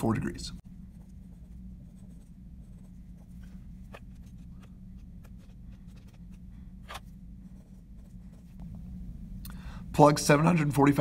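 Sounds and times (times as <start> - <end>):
low steady hum: 0.0 - 11.0
pen scratching on paper: 0.8 - 8.6.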